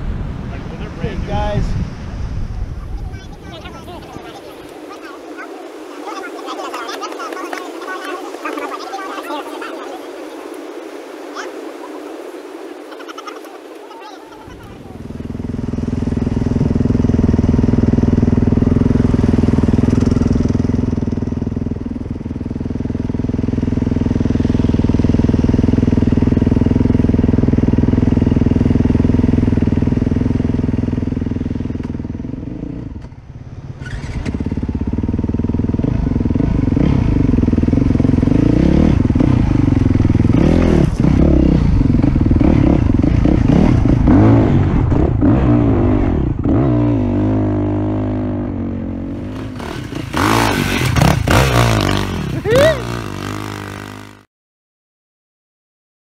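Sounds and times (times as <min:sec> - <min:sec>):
dirt bike engine revving: 0:03.4 - 0:54.2.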